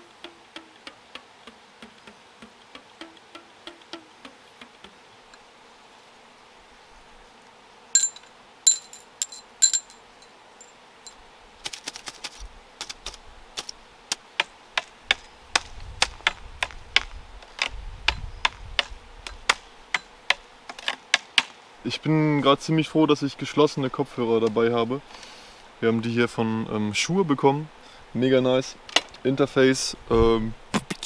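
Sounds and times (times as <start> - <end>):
sharp clicks with metallic ring: 8.0 - 10.3.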